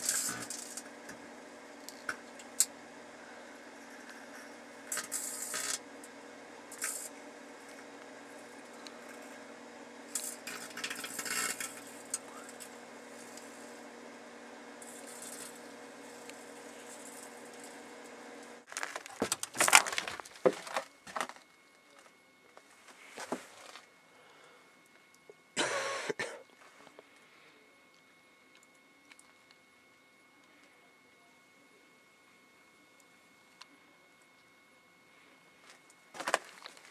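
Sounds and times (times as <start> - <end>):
crackling inside microwave: 0.0 - 22.1
microwave oven humming: 0.0 - 36.9.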